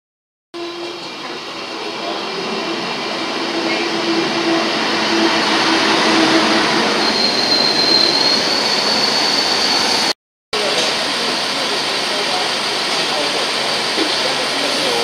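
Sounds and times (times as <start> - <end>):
train rolling past: 0.6 - 15.0
high squeal of train brakes: 4.6 - 10.1.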